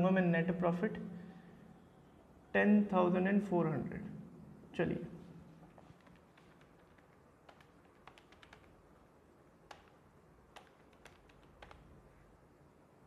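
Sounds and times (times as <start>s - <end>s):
marker tapping on whiteboard: 5.8s - 8.7s, 10.6s - 11.9s.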